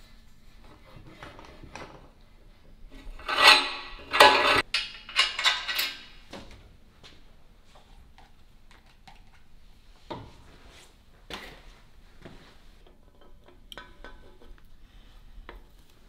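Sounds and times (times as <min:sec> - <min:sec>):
metal parts clinking and knocking: 0:03.0 - 0:06.3.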